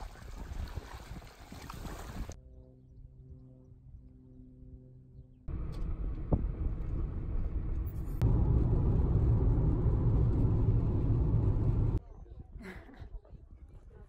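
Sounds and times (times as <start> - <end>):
road and engine rumble: 5.5 - 12.0.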